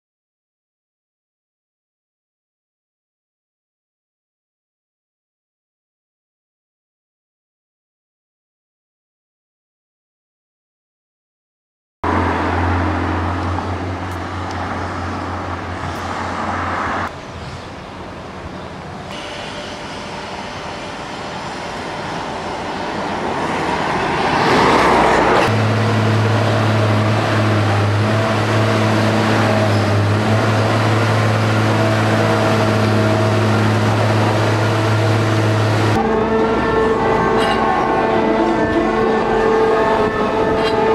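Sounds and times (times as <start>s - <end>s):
steady low drone: 12.0s - 40.9s
machine power unit humming: 18.0s - 24.2s, 25.2s - 39.5s
wash of noise: 18.0s - 38.4s.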